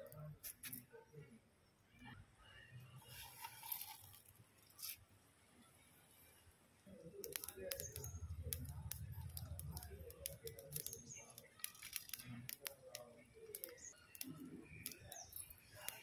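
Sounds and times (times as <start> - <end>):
wood fire crackling and popping: 7.2 - 16.0.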